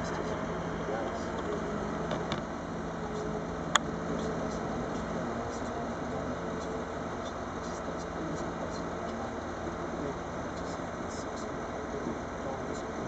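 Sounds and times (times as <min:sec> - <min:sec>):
machinery engine running: 0:00.0 - 0:13.0.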